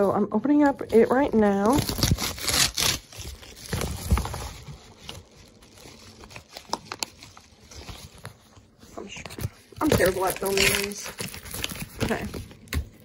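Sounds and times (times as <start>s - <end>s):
packaging crinkling: 0.6s - 13.0s
cardboard scraping: 7.7s - 12.6s.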